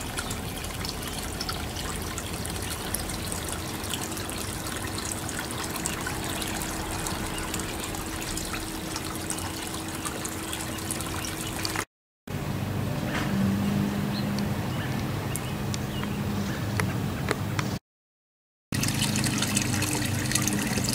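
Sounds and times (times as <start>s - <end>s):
water trickling in pond: 0.0s - 11.9s, 18.7s - 20.9s.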